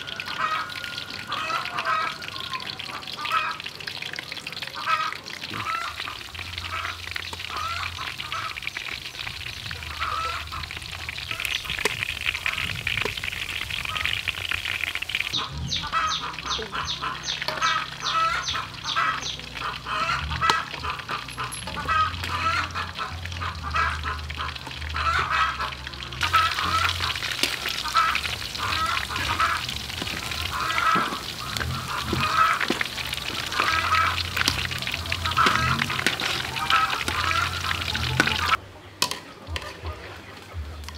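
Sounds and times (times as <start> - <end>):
ducks quacking: 0.0 - 38.6
oil sizzling and bubbling: 0.0 - 39.8.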